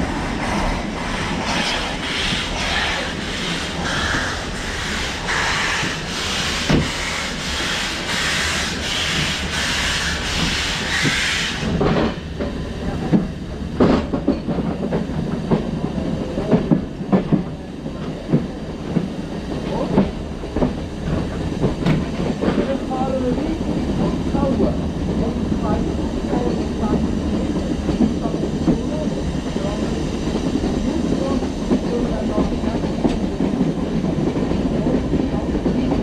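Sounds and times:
steam hissing: 0:00.0 - 0:12.1
steam locomotive chuffing: 0:00.0 - 0:13.0
train wheels clattering on track: 0:00.0 - 0:36.0.

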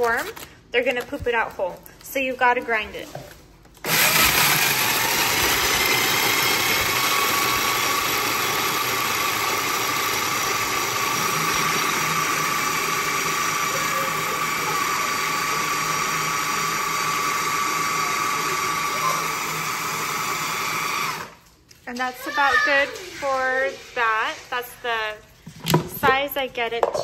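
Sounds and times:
food processor grinding seeds: 0:03.8 - 0:21.4.

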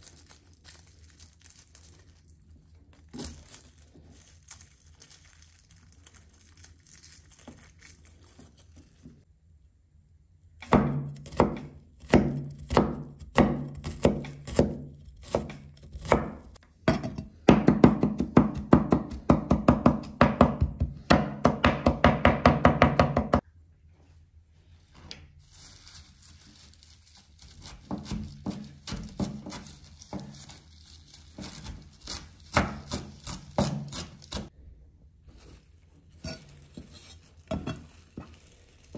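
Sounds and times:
rustling of garlic being peeled: 0:00.0 - 0:09.6, 0:24.6 - 0:38.9
knife chopping on wooden board: 0:10.6 - 0:23.4.

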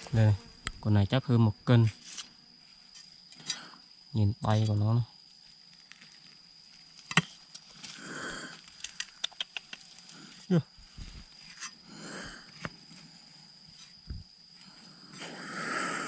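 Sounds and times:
turtle hissing: 0:08.0 - 0:08.6, 0:15.2 - 0:16.0.

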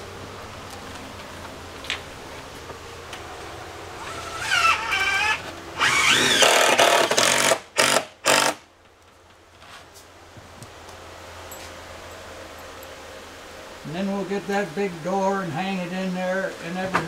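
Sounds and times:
power drill whining: 0:04.0 - 0:08.6.

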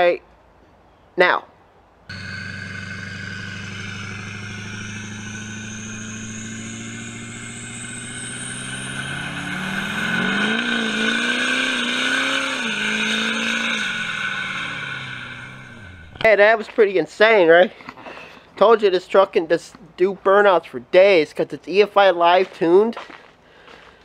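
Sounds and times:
high turbo whistle: 0:02.1 - 0:16.2
diesel truck engine revving: 0:02.1 - 0:16.3.

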